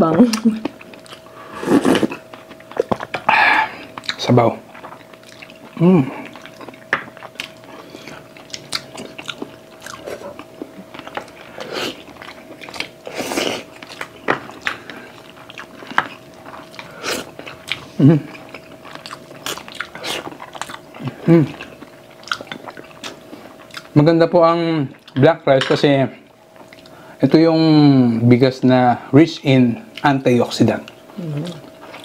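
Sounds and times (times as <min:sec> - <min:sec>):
biting and chewing: 0:01.9 - 0:24.0.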